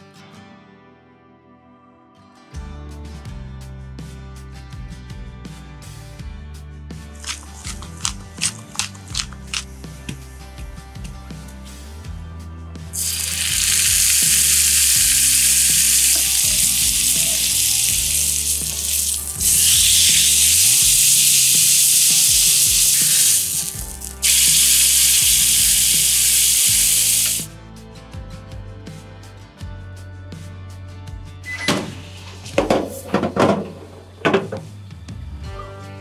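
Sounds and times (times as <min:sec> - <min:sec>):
meat sizzling in a frying pan: 0:13.0 - 0:27.5.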